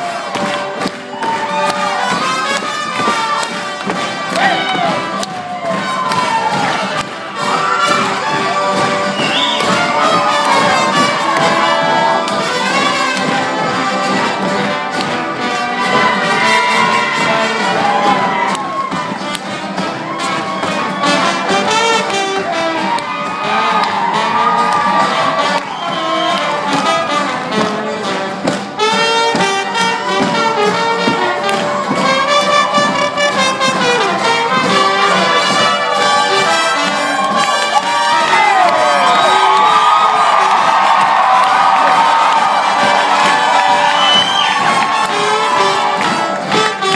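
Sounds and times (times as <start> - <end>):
horn section playing: 0.0 - 46.9
live acoustic band music: 0.0 - 46.9.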